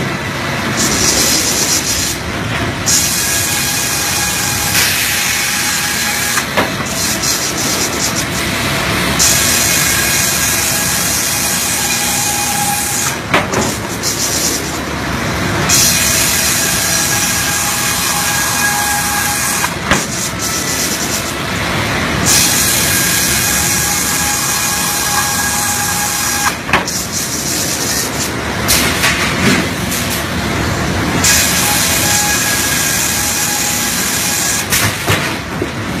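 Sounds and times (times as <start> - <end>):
industrial machinery running: 0.0 - 36.0
loud hiss: 9.2 - 14.8, 15.6 - 21.4.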